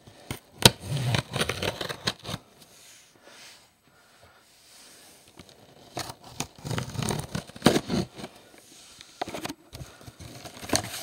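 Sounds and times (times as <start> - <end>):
knife slitting tape on cardboard: 0.6 - 2.4, 5.8 - 8.3.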